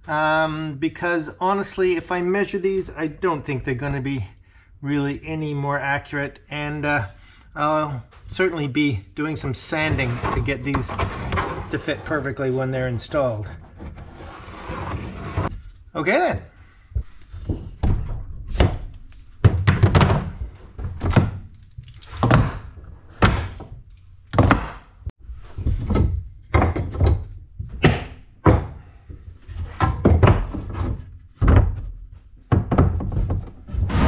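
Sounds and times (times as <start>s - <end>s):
wooden knocks and thunks: 17.0s - 21.5s, 22.2s - 24.9s, 25.6s - 34.0s.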